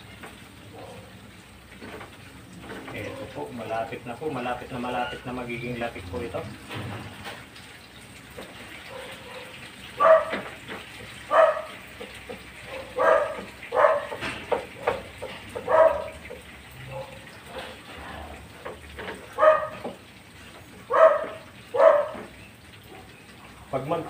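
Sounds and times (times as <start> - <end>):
coconut milk sizzling in a pan: 0.0 - 24.0
dog barking: 0.7 - 1.2, 3.0 - 3.4, 8.9 - 10.5, 11.2 - 11.8, 12.6 - 17.8, 19.3 - 19.9, 20.9 - 22.3.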